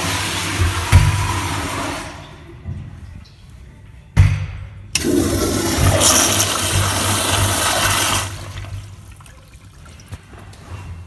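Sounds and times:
toilet flushing: 0:00.0 - 0:02.5, 0:05.0 - 0:10.1.

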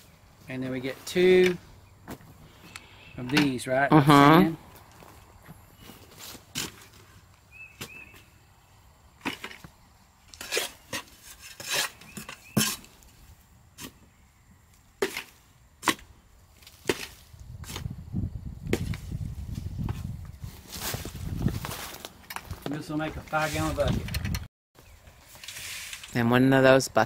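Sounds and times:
trowel scraping soil in bucket: 0:10.3 - 0:13.2, 0:15.0 - 0:17.9, 0:25.2 - 0:26.2.

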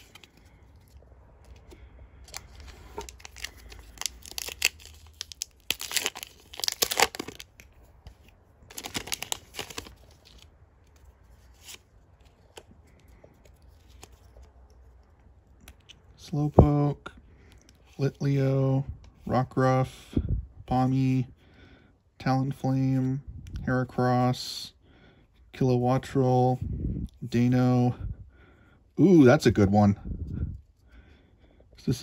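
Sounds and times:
cards being handled ticking: 0:00.0 - 0:16.1
foil wrapper tearing and crinkling: 0:02.3 - 0:07.6, 0:08.7 - 0:10.5.

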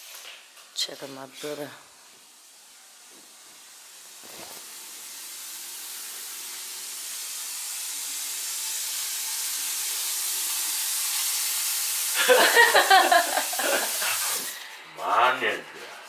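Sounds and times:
water running from tap: 0:01.8 - 0:14.6.

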